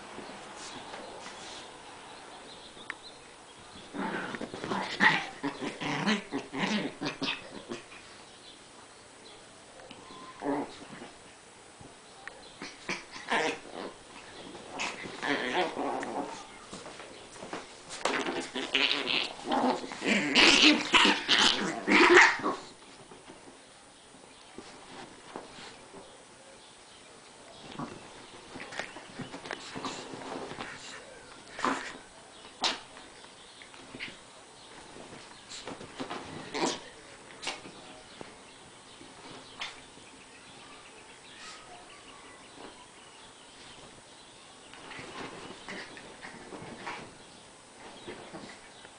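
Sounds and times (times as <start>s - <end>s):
small dogs growling: 3.7s - 8.2s, 10.0s - 11.3s, 12.5s - 22.8s, 27.6s - 33.1s, 33.7s - 38.3s, 44.7s - 47.2s.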